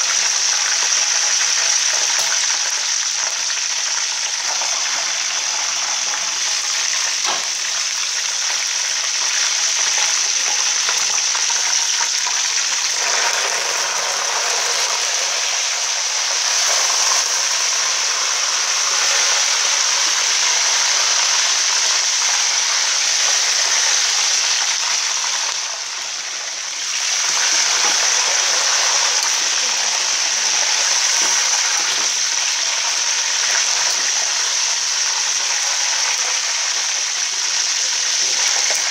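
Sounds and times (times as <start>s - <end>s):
hot oil sizzling: 0.0s - 38.9s.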